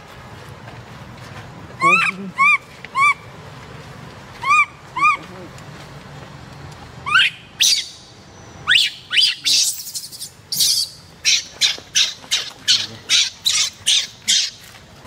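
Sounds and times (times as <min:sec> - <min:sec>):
baby monkey crying and screaming: 0:01.8 - 0:03.2, 0:07.1 - 0:08.0, 0:08.7 - 0:14.6.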